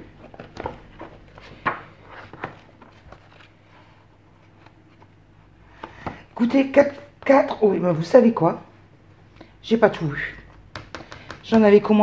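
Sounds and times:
paper rustling: 0.0s - 5.1s
book pages flipping: 0.0s - 5.2s.

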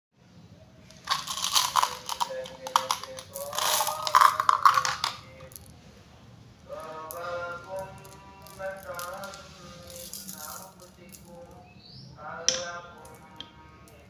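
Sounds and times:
glass marbles clinking: 1.0s - 5.7s, 6.8s - 11.7s, 12.5s - 14.0s.

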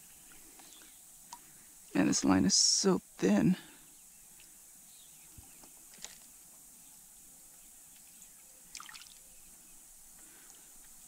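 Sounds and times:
fish splashing at surface: 8.7s - 9.2s.

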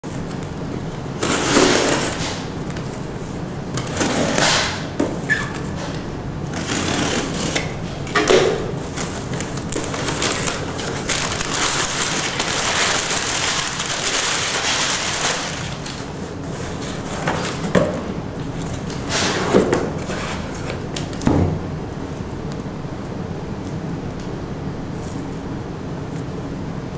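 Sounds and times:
packing paper rustling: 0.0s - 21.3s
knife cutting packing tape: 1.2s - 2.9s, 6.5s - 7.8s, 8.9s - 16.0s.

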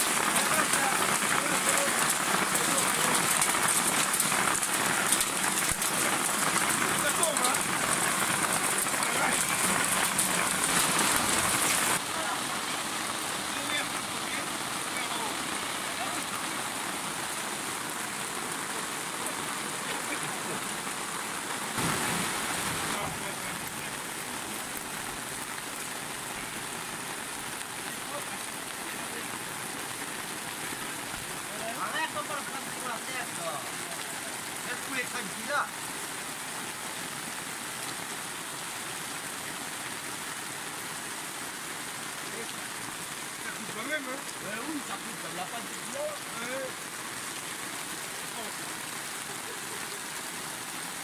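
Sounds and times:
runoff splashing onto ground: 0.0s - 36.1s
heavy rain falling: 0.0s - 51.0s.

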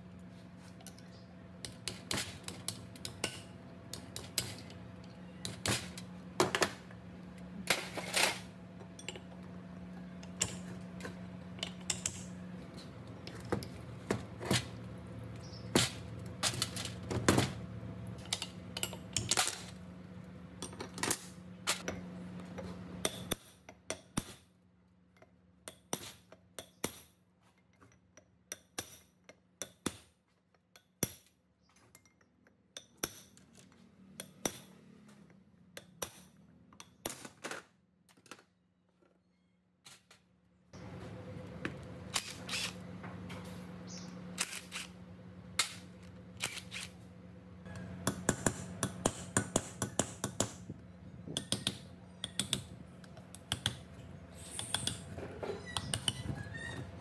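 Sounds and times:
steady low hum: 40.6s - 57.0s.

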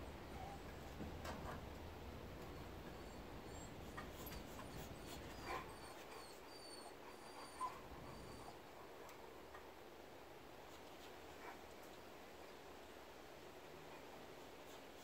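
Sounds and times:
dog whining: 0.0s - 1.0s, 2.5s - 8.8s.

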